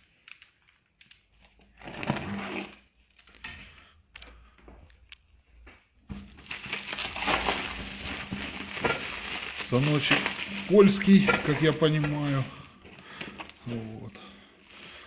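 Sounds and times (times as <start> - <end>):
plastic film crinkling: 6.1 - 15.0.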